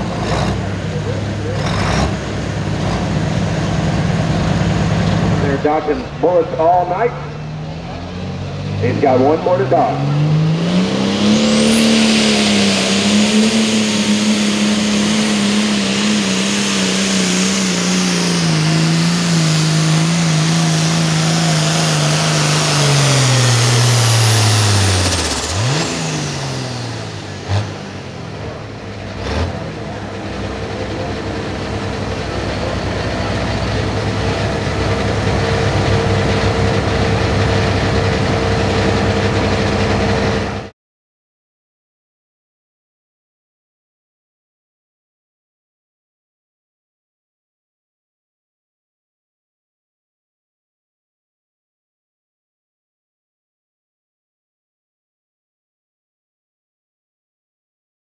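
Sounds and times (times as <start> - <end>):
diesel engine at full throttle: 0.0 - 40.7.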